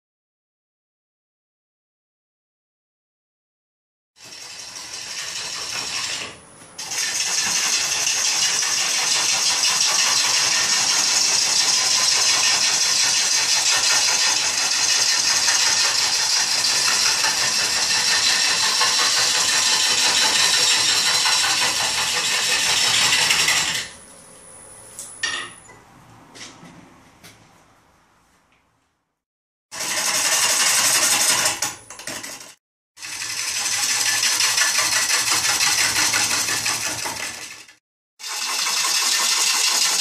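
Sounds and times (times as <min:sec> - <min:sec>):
wood lathe gouge scraping: 0:04.2 - 0:24.0, 0:29.8 - 0:40.0.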